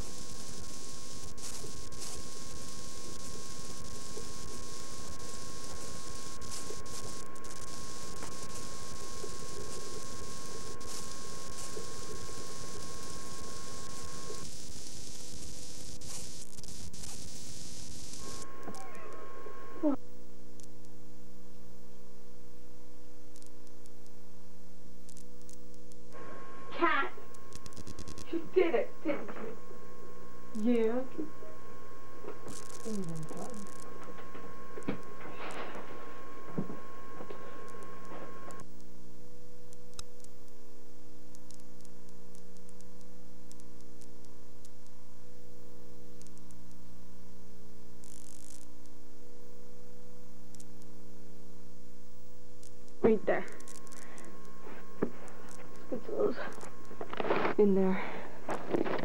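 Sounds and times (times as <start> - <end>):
electrical hum: 0.0 - 59.0
faint clicks: 20.6 - 21.0, 23.3 - 24.2, 25.0 - 26.2, 27.3 - 28.3, 39.7 - 40.6, 41.3 - 45.0, 46.1 - 46.8, 50.5 - 50.9
faint ticks: 39.7 - 40.6, 41.3 - 45.0, 46.1 - 46.8, 50.5 - 50.9.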